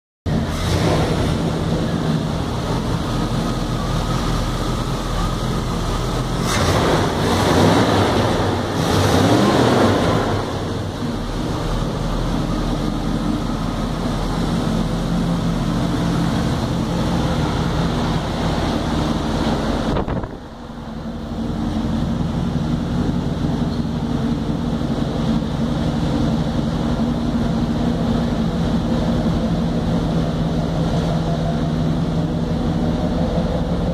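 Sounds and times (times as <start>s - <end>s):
pickup truck engine idling: 0.3s - 33.9s
loud rushing noise: 6.3s - 13.2s, 15.4s - 22.5s.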